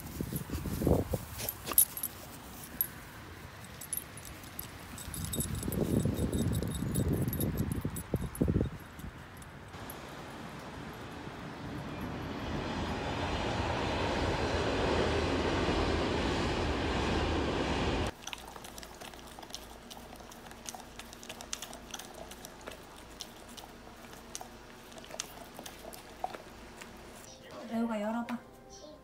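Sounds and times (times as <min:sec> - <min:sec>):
train passing on elevated track: 0:09.8 - 0:18.1
puppy chewing clicks: 0:18.1 - 0:27.2.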